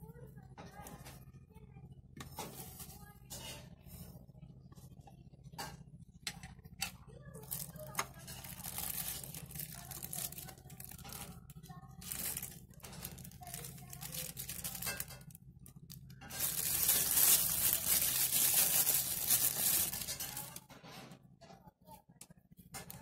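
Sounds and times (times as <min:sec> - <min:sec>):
plastic wrapping crinkling: 0:07.4 - 0:20.6.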